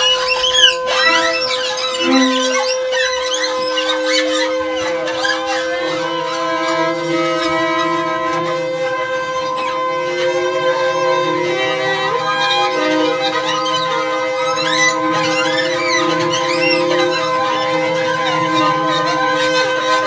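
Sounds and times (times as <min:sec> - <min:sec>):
long held layered tones: 0:00.9 - 0:03.0.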